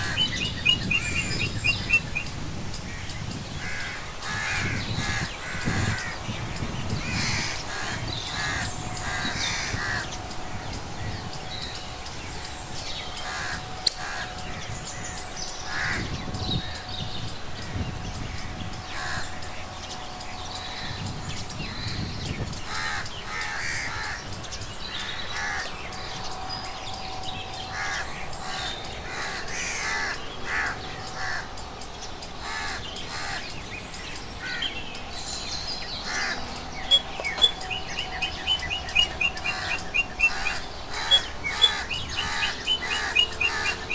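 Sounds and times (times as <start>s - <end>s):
crows cawing: 0.0s - 0.4s, 2.8s - 6.2s, 6.9s - 11.2s, 13.0s - 16.9s, 17.6s - 19.5s, 22.6s - 31.6s, 32.4s - 33.6s, 34.4s - 34.7s, 36.0s - 43.9s
birds calling: 0.0s - 43.9s.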